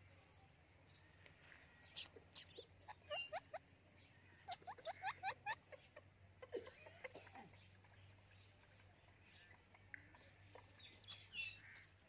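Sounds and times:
parakeet chirping: 2.0 - 3.6, 4.4 - 6.1, 9.3 - 11.9.

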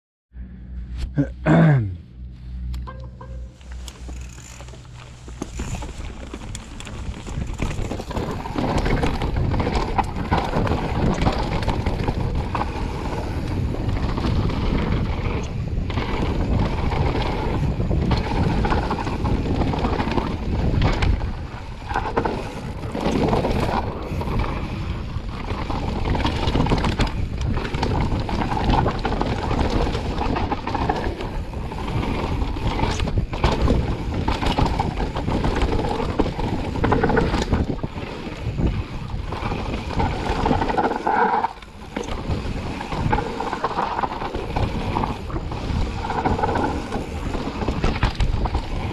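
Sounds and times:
bike tyre noise: 0.4 - 48.9
bike knocking and rattling: 2.8 - 48.9
wind buffeting microphone: 5.2 - 48.9.

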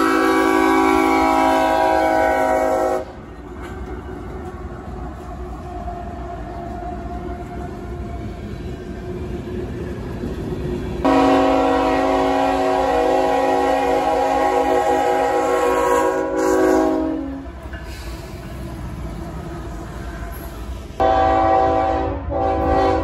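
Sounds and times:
locomotive air horn blast: 0.0 - 3.2, 11.0 - 18.0, 21.0 - 23.0
passing train rumble: 0.0 - 23.0.

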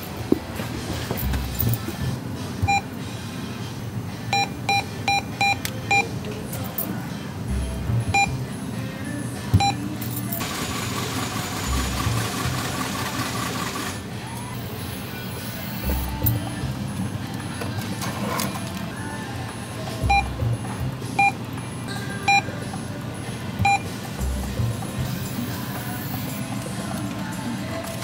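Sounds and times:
cash dispenser whirring: 0.0 - 3.1, 9.4 - 28.0
keypad beeps: 2.6 - 2.9, 4.3 - 6.1, 8.1 - 8.4, 9.6 - 9.8, 20.1 - 20.4, 21.2 - 21.4, 22.2 - 22.5, 23.6 - 23.9.

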